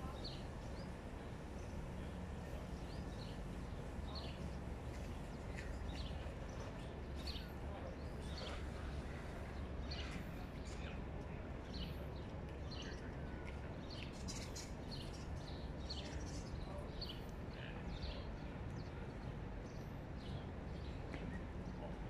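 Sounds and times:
small birds chirping: 0:12.6 - 0:21.9.

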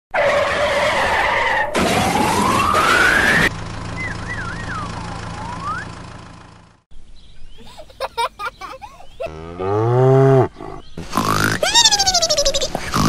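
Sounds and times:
rising whine: 0:02.2 - 0:06.2
swooping wavering whistle: 0:04.0 - 0:06.0.

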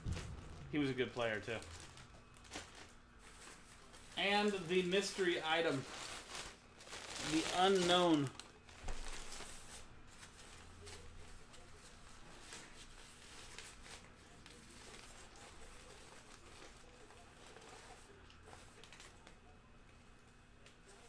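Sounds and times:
cloth bag rustling: 0:00.0 - 0:10.4
low steady hum: 0:00.0 - 0:21.0.

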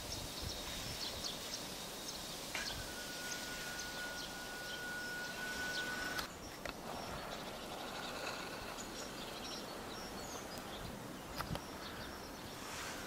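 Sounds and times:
steady background hiss: 0:00.0 - 0:13.0
steady high tone: 0:02.6 - 0:06.3
short high bird chirps: 0:02.6 - 0:06.4.

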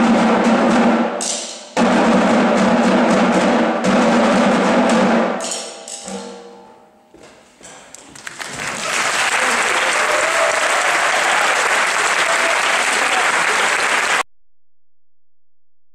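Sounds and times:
audience applauding: 0:08.1 - 0:14.3.

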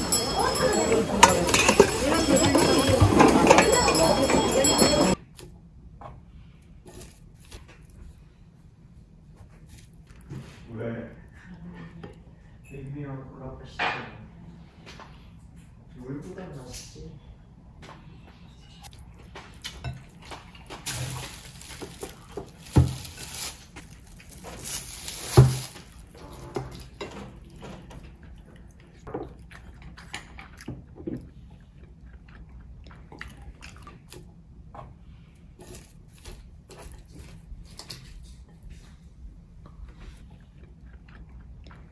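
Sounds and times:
wet chewing with mouth clicks: 0:18.8 - 0:22.6, 0:27.4 - 0:38.7, 0:39.6 - 0:41.9.

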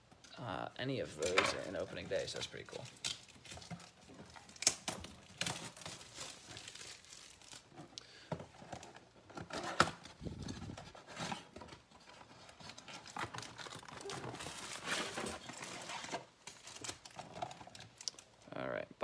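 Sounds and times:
card packaging crinkling: 0:01.1 - 0:07.9, 0:12.1 - 0:18.3.

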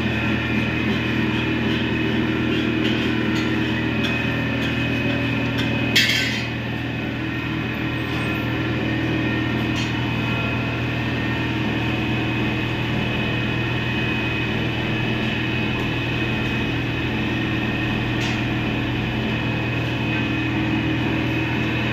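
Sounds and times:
machine hum of electric motors: 0:00.0 - 0:21.9.

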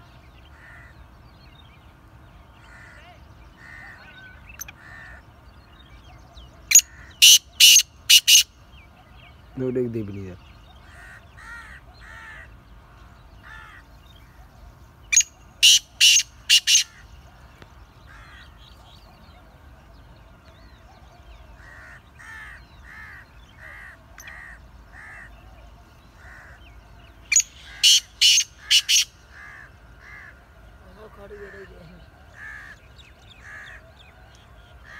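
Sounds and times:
faint evenly spaced bird notes: 0:04.3 - 0:34.9
francolin harsh grating call: 0:06.7 - 0:08.5, 0:15.2 - 0:17.0, 0:27.3 - 0:30.4.

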